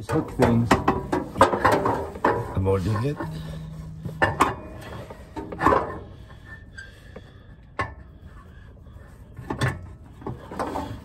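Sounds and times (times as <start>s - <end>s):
metal exhaust parts clanking: 0.0s - 8.3s.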